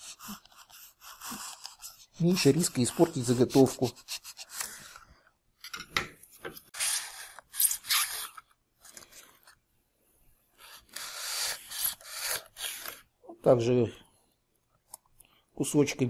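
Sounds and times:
knife scraping strokes: 0.0 - 4.8, 10.7 - 13.1.

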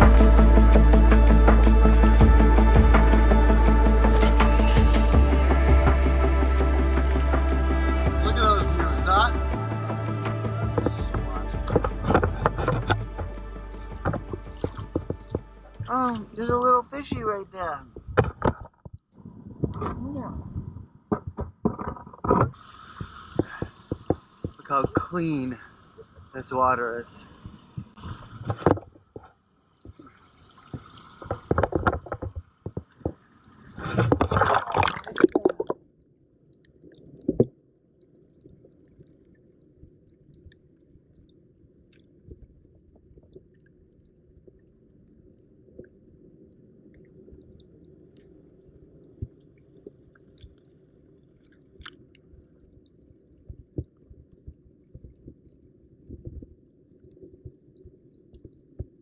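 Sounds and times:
seawater splashing: 0.0 - 18.7, 21.7 - 35.8
muffled underwater rumble: 0.0 - 35.8, 38.2 - 59.0
faint underwater clicks: 10.2 - 20.0, 21.1 - 35.8, 36.4 - 59.0.

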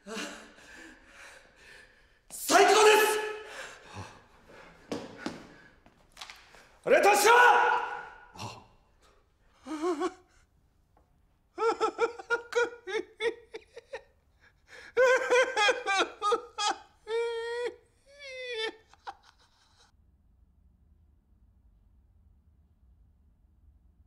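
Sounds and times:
person laughing: 0.0 - 1.5, 9.7 - 10.2, 11.6 - 14.1, 14.8 - 19.8
long drawn-out cries: 0.0 - 4.7, 6.9 - 8.6, 11.6 - 13.3, 14.8 - 19.1.

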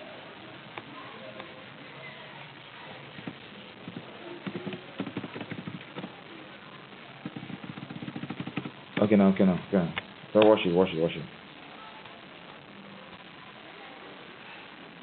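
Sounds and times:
steady background hiss: 0.0 - 15.0
keyboard typing: 3.2 - 6.2, 7.2 - 9.2.

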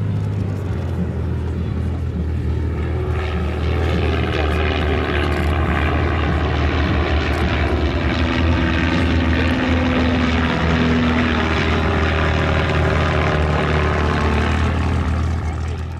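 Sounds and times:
propeller aircraft flying past: 0.0 - 15.9.

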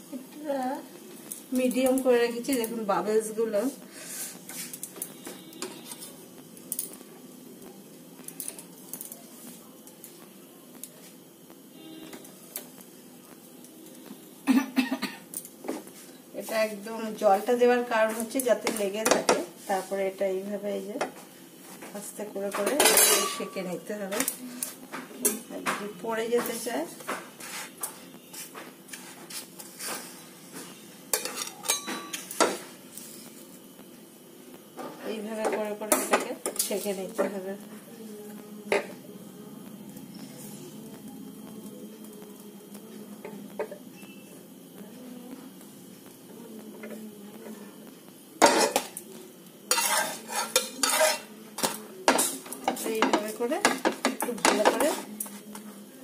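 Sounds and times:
metal spatula scraping a pan: 49.7 - 52.4.

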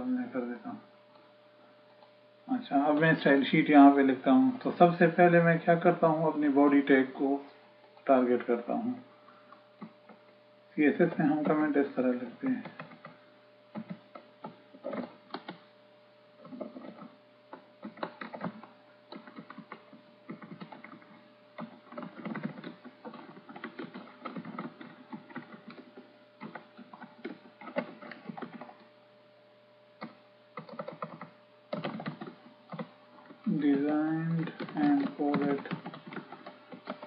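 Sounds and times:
faint electrical hum: 0.0 - 37.0
keyboard typing: 12.6 - 15.6, 16.4 - 28.9, 30.0 - 37.0.

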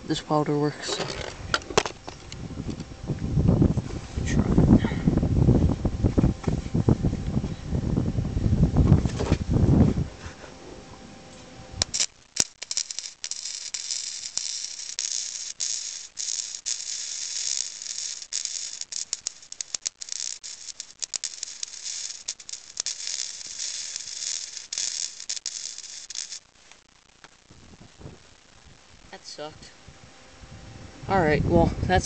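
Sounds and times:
welder arc crackling and popping: 11.3 - 29.7.

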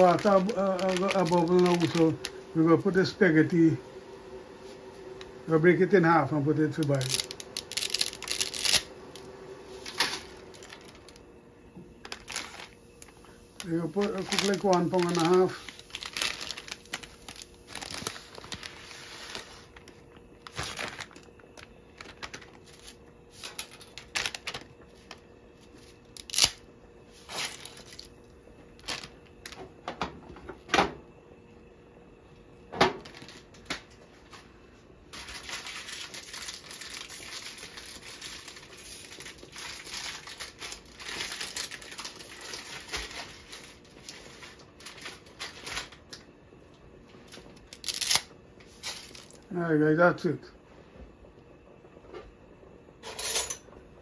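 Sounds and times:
crinkling and rustling: 0.0 - 2.5, 6.6 - 8.9, 9.7 - 26.6, 27.2 - 29.7, 33.0 - 34.5, 35.1 - 46.3, 47.2 - 49.4
spaghetti snapping: 6.7 - 11.2, 12.0 - 18.7, 26.1 - 26.7, 47.3 - 49.4.

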